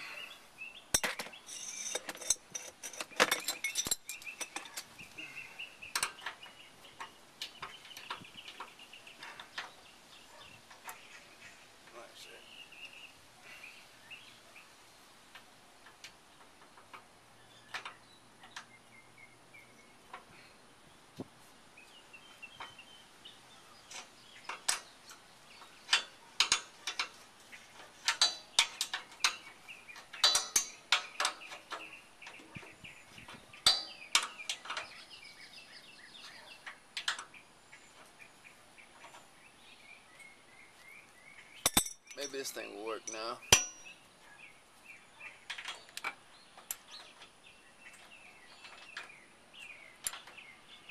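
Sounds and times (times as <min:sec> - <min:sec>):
birds chirping: 0:00.0 - 0:50.9
hand tools clinking on metal: 0:00.9 - 0:05.0, 0:23.9 - 0:32.7, 0:33.6 - 0:35.0, 0:41.6 - 0:43.9.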